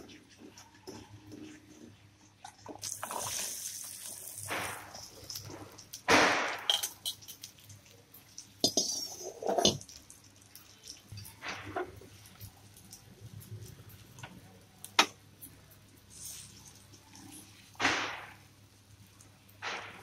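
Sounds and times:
spatula stirring in metal pan: 0.0s - 6.0s, 6.6s - 12.5s
oil sizzling: 0.0s - 20.0s
food pieces clattering into pan: 2.8s - 12.0s
spatula scraping and knocking: 8.6s - 9.8s.

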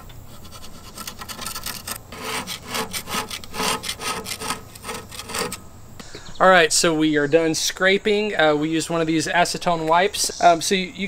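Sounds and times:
gasket scraper scraping ceramic: 0.3s - 5.6s.

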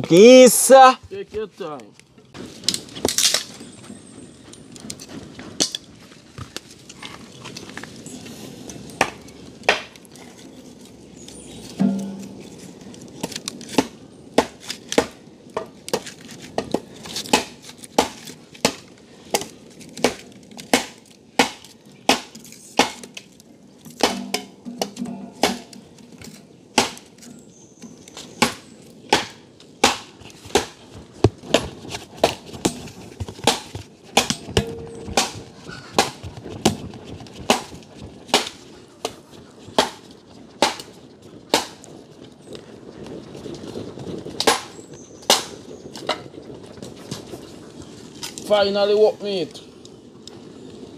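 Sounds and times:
machete chopping wood: 9.0s - 10.0s, 13.2s - 15.2s, 15.9s - 23.1s, 24.0s - 25.8s, 26.8s - 27.1s, 28.4s - 30.8s, 31.5s - 35.4s, 39.8s - 40.0s, 40.6s - 40.9s, 41.5s - 41.8s.

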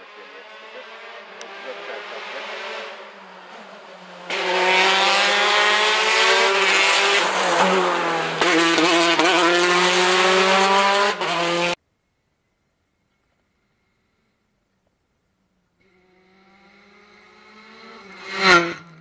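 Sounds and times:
rally car engine at high revs: 0.0s - 11.8s, 15.8s - 19.0s.

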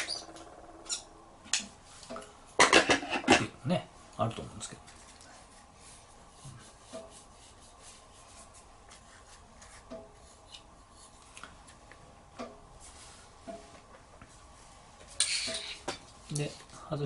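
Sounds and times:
faint rubbing and handling: 4.8s - 11.9s, 12.8s - 16.8s.

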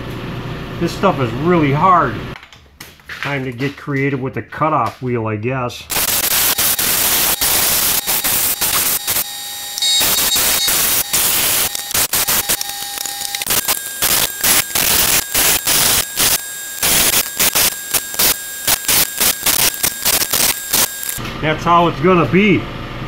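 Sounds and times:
grinder cutting steel pipe: 5.9s - 21.2s.

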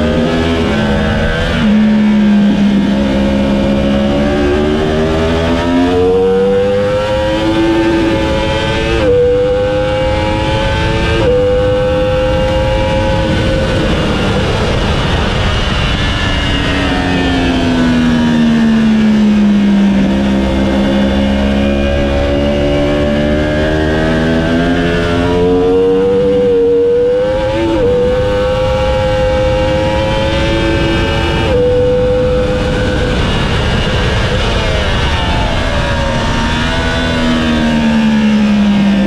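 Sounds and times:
motorcycle engine accelerating: 0.0s - 39.0s
wind rush: 0.0s - 39.0s.

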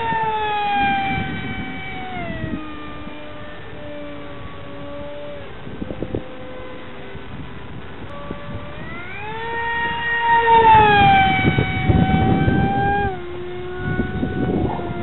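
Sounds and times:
model plane motor whining: 0.0s - 15.0s.

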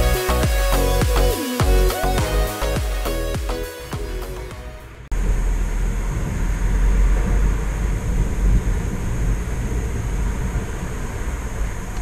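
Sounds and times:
even hiss: 0.0s - 4.6s
deep fluctuating rumble: 5.1s - 12.0s.

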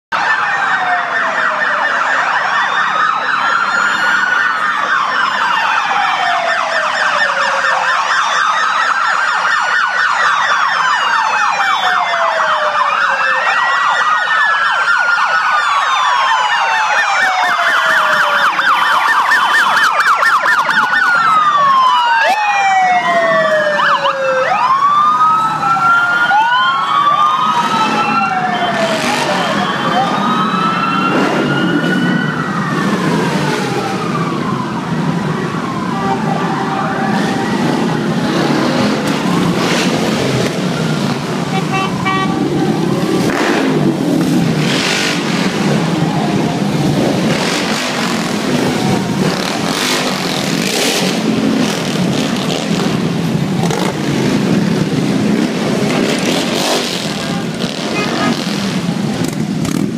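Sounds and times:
siren fast yelp: 0.1s - 38.5s
police sirens wailing: 0.1s - 59.9s.

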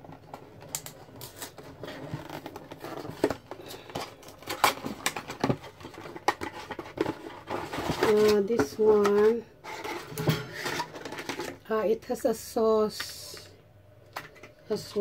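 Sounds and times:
plastic packaging crinkling: 0.1s - 9.1s.

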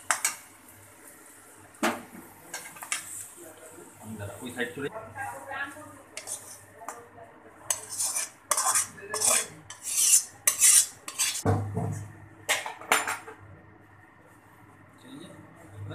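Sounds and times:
metal spatula scraping metal pan: 6.2s - 6.6s, 7.7s - 11.4s.

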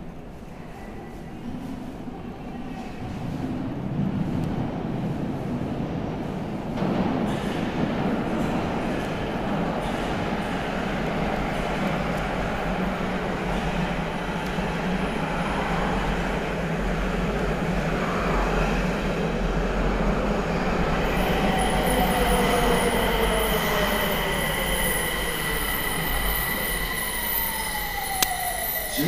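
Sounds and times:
train wheels rumbling on rail: 0.0s - 29.0s
high brake squeal: 21.1s - 29.0s.

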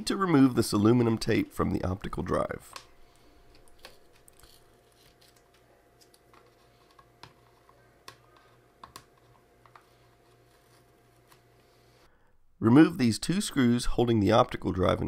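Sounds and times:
faint steady hum: 0.0s - 15.0s
tape peeling clicks and crinkles: 3.5s - 8.2s.

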